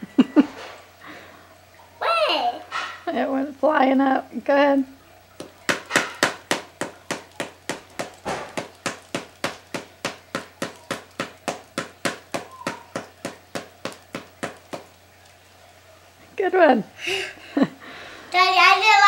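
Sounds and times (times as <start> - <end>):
paddle ball tapping paddle: 5.4 - 15.4.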